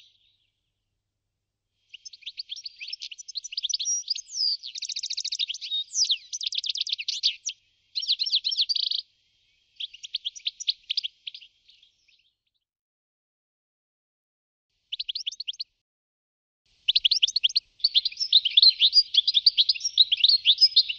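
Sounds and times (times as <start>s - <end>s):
goldfinch twittering song: 1.9s - 9.0s, 14.9s - 15.7s, 16.9s - 20.9s.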